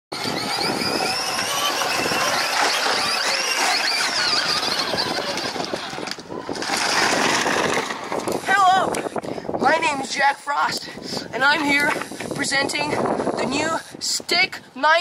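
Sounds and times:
wheels rumbling on gravel: 0.1s - 8.9s
electric motor whining: 0.1s - 9.2s.

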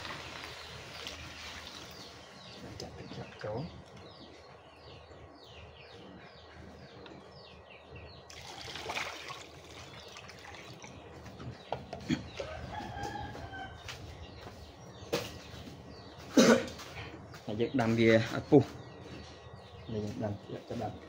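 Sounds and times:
small birds chirping: 0.0s - 21.0s
water splashing into a wok: 8.3s - 10.9s
rooster crowing: 12.4s - 14.0s.

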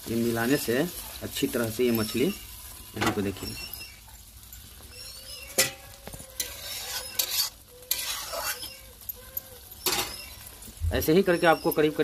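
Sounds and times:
curry sizzling: 0.0s - 12.0s
spoon scraping iron pan: 5.4s - 10.4s.

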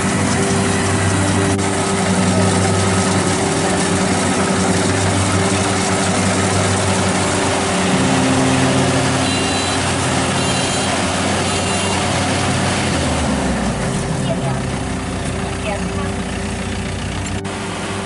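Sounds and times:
combine harvester engine running: 0.0s - 18.0s
reversing alarm beeps: 9.2s - 12.0s.

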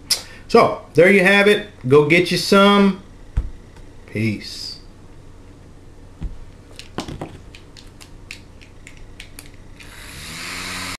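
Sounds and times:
low thump: 3.4s - 3.6s.

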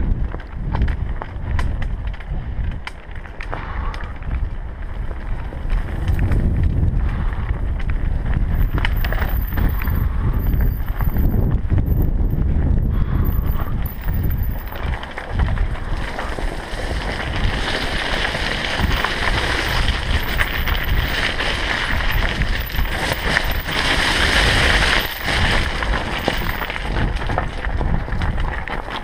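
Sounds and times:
bike tyres rattling over stones: 0.0s - 29.0s
wind noise on microphone: 0.0s - 29.0s
tyres hissing over loose gravel: 12.8s - 29.0s.

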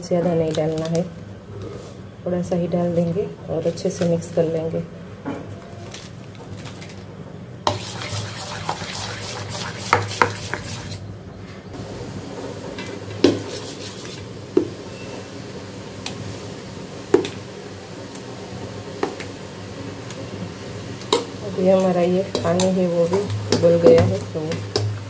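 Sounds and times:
spoon stirring batter in bowl: 7.7s - 11.0s, 13.2s - 14.3s.

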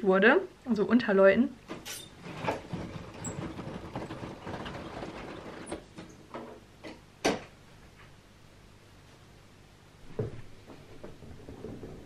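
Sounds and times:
roller shutter slats clattering: 1.7s - 6.6s.

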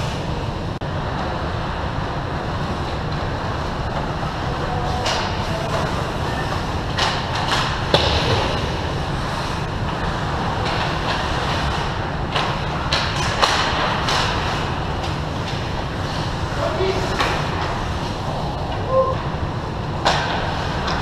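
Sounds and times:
hockey sticks and puck clacking: 5.0s - 19.2s, 20.0s - 21.0s
skate blades scraping ice: 5.9s - 18.6s.

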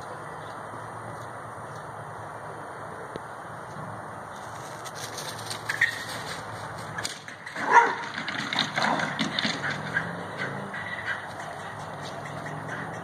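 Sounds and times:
squirrel chattering call: 9.7s - 13.0s.

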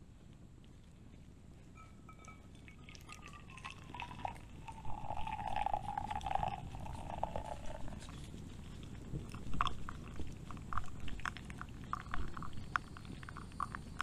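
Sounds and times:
water pouring from kettle: 2.2s - 8.0s.

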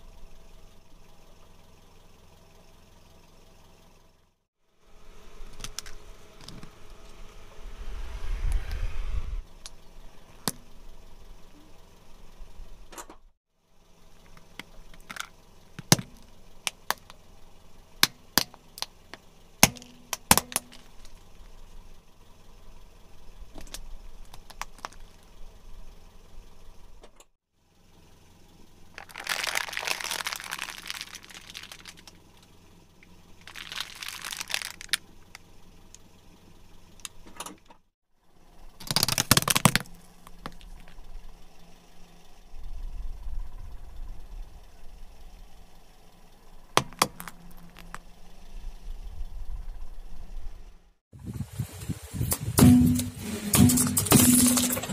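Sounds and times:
car tyre rolling on asphalt: 0.0s - 52.6s
plastic packaging crinkling: 28.9s - 32.2s, 33.4s - 35.0s, 38.8s - 40.7s
plastic cracking and snapping: 29.0s - 32.2s, 33.5s - 35.0s, 38.8s - 40.9s.

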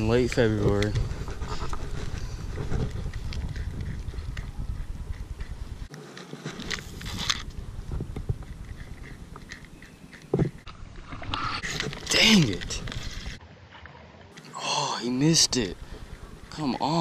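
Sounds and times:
wind rumbling on microphone: 0.0s - 5.9s, 6.6s - 13.4s.

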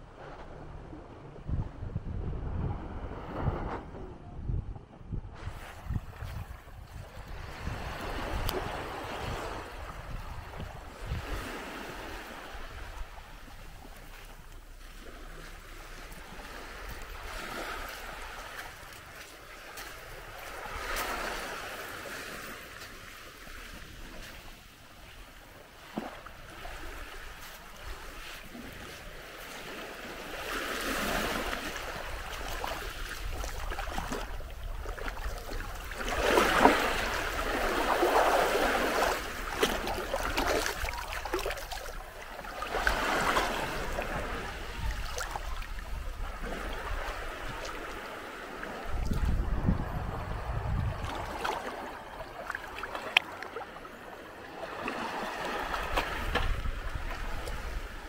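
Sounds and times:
small waves washing on beach: 5.3s - 58.0s.

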